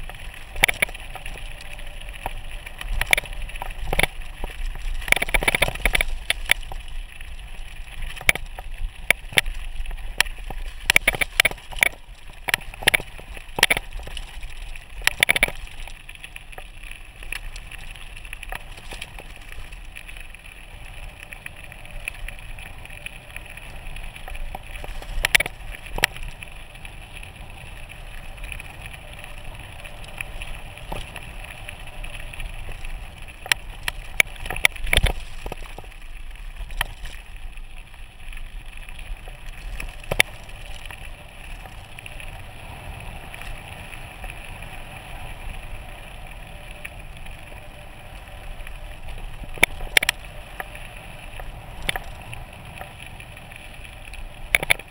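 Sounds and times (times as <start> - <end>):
bike rattling over bumps: 0.0 - 21.0, 23.6 - 45.8
bike tyres rumbling on gravel: 0.0 - 54.9.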